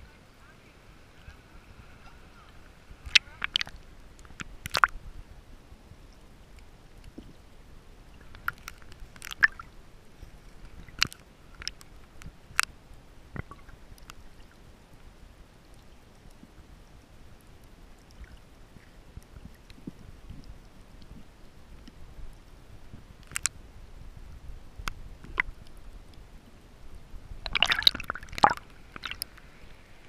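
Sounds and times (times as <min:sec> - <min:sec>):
muffled water noise: 0:00.0 - 0:30.0
sharp underwater clicks and pops: 0:03.0 - 0:05.0, 0:08.2 - 0:09.7, 0:10.6 - 0:12.7, 0:13.3 - 0:14.2, 0:23.2 - 0:23.6, 0:24.8 - 0:26.2, 0:27.4 - 0:29.5.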